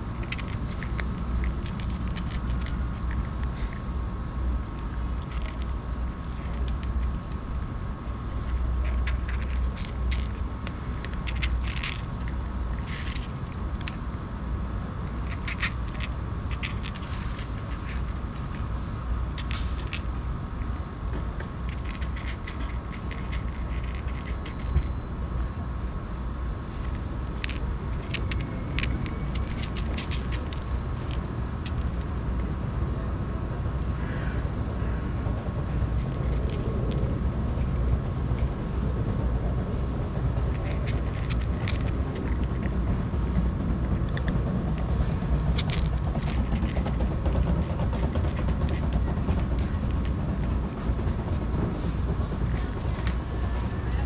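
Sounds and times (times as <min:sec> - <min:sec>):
cat crunching dry kibble: 0:00.0 - 0:25.1, 0:26.6 - 0:32.6, 0:35.5 - 0:51.6, 0:52.4 - 0:54.0
low outdoor rumble: 0:00.0 - 0:54.0.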